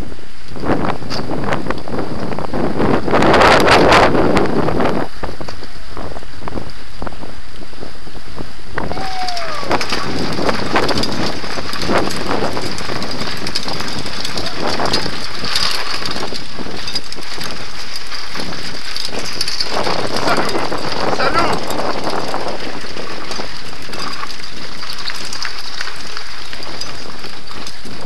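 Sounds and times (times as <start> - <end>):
wind noise on microphone: 0.0 - 28.0
bike rattling over cobblestones: 9.0 - 28.0.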